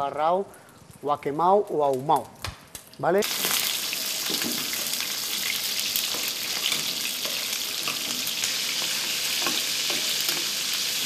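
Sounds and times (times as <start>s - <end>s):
prawns sizzling in oil: 3.2s - 11.0s.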